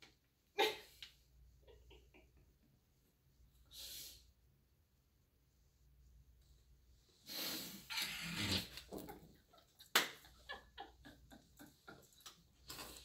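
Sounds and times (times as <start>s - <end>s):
person laughing: 10.2s - 12.3s.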